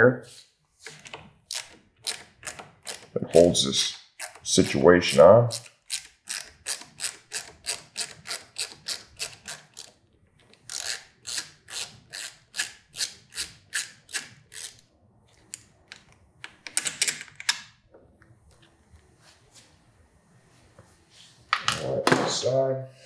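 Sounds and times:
ratcheting screwdriver clicking: 0.8 - 3.2, 3.8 - 4.8, 5.5 - 14.8
small parts rattling: 10.5 - 14.8.

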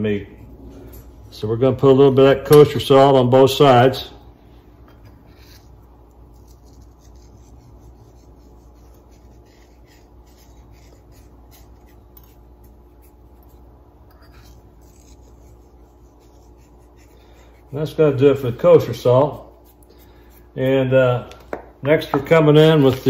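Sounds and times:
low steady hum: 0.0 - 23.0
fingers rubbing meat: 5.2 - 20.6.

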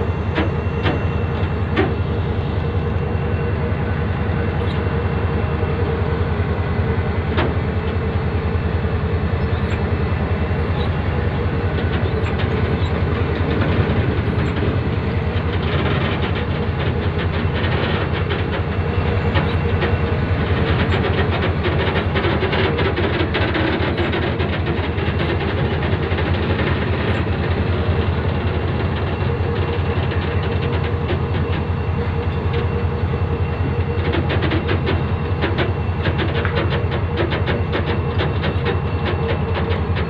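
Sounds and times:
constant hum: 0.0 - 40.0
train rumble: 0.0 - 40.0
wheels clicking over rail joints: 9.4 - 32.8, 33.5 - 40.0.

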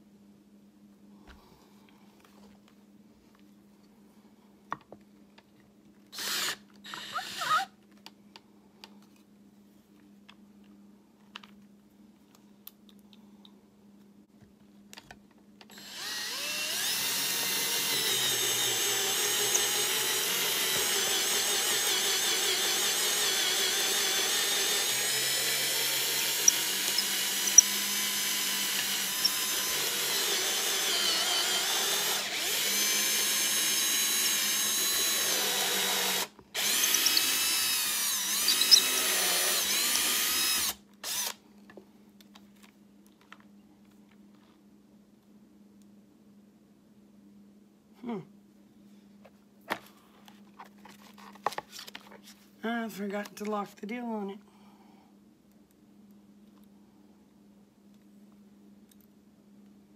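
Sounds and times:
power drill running: 6.2 - 7.7, 15.7 - 41.4.

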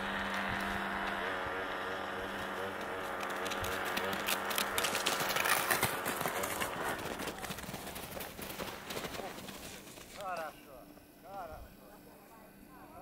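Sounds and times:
motor humming and whining: 0.0 - 7.3
running feet on packed snow: 0.1 - 10.5.

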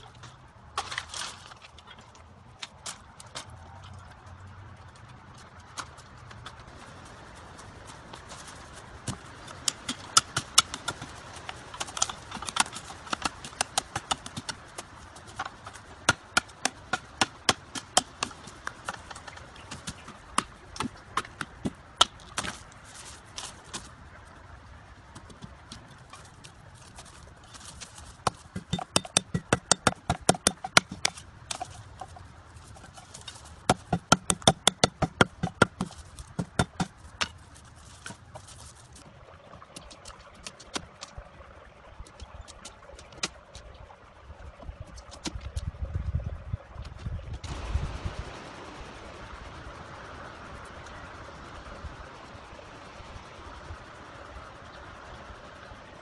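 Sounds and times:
machete chopping bamboo: 15.4 - 22.6, 28.3 - 31.6, 33.6 - 37.3.

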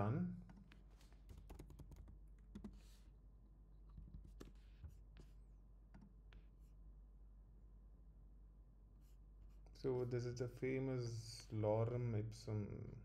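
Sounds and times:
faint keyboard keystrokes: 0.5 - 2.8.

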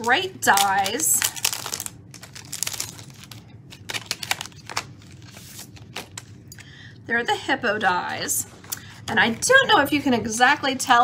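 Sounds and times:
packaging rustling and crinkling: 0.0 - 6.4.

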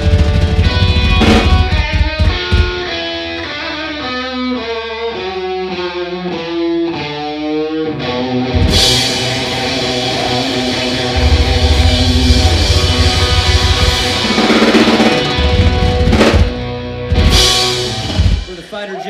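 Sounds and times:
drums and bass with cymbals: 0.0 - 3.6, 8.5 - 18.6
electric guitar bent notes: 0.0 - 18.6.

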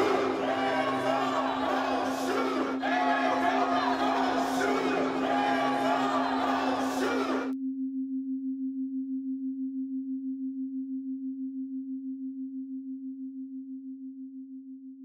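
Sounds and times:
voices and music: 0.0 - 7.6.

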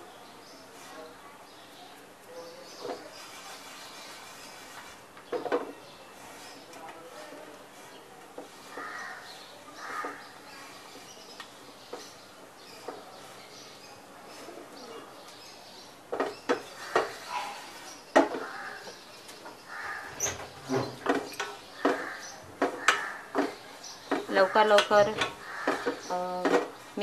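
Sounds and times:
birds calling: 1.5 - 27.0
grated coconut rustling in pan: 3.1 - 5.1
sharp clicks and knocks: 20.2 - 26.8.

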